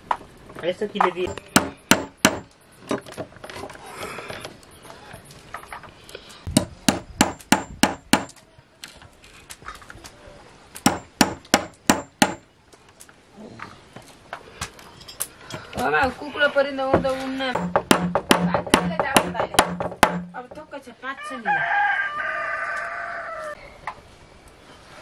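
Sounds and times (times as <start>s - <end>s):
hammer striking nail into wood: 1.3s - 2.5s, 6.5s - 8.4s, 10.8s - 12.4s, 17.6s - 20.4s.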